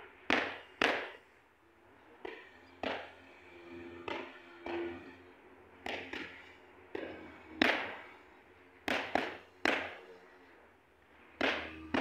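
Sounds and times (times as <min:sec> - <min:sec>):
boxing gloves hitting focus mitts: 0:11.4 - 0:12.0.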